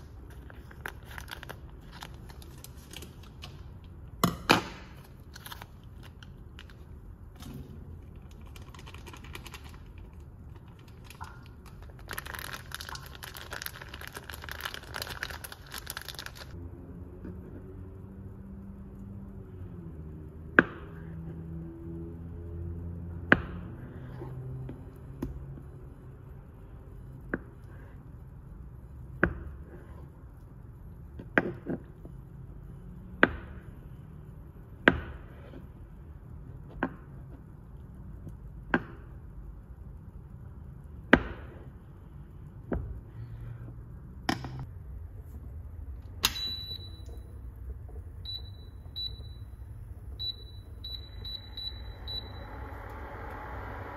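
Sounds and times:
cooktop control beeps: 46.2s - 47.4s, 48.2s - 53.0s.

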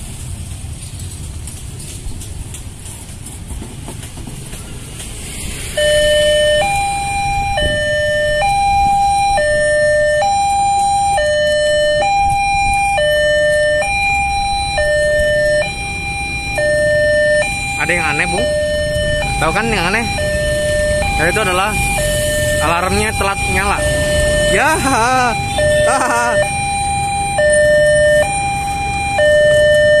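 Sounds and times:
motorbikes: 0.0s - 30.0s
level crossing two-tone alarm: 5.6s - 30.0s.

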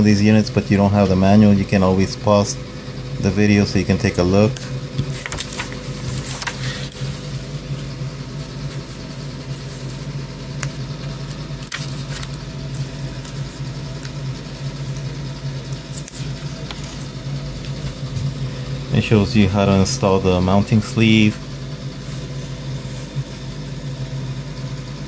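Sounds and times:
low mechanical hum: 0.0s - 25.0s
paper rustling: 5.0s - 18.3s.

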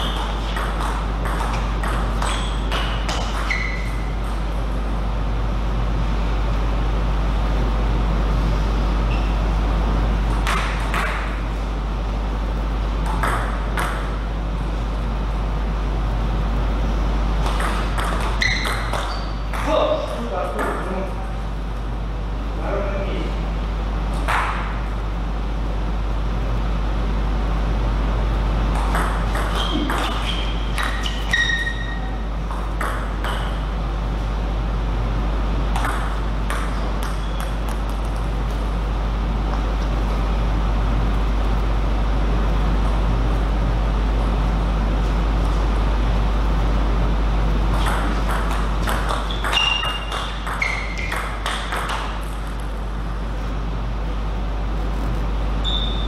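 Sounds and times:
shoes squeaking on floor: 0.0s - 0.6s, 2.2s - 4.3s, 9.1s - 9.4s, 18.2s - 19.5s, 29.4s - 32.2s, 49.2s - 51.3s, 55.6s - 56.0s
steady low hum: 0.0s - 56.0s.

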